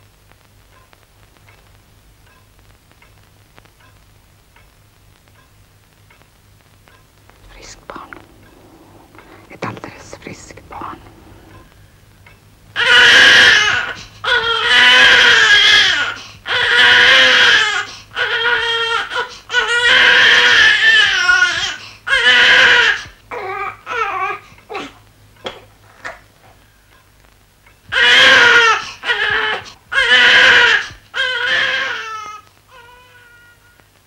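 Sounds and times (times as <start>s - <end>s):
newborn baby crying: 12.8s - 25.0s, 27.9s - 33.8s.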